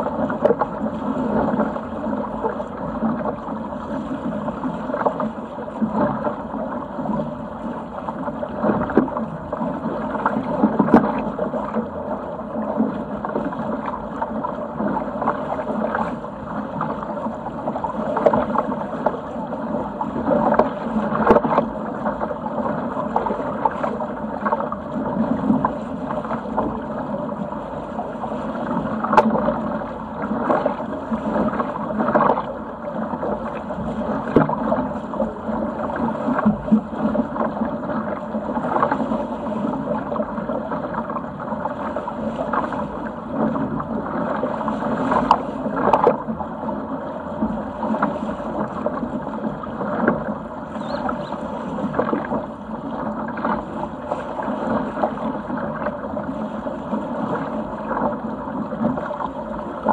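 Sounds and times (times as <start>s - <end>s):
water rushing along a hull: 0.0s - 59.9s
water slapping against a hull: 0.0s - 59.9s.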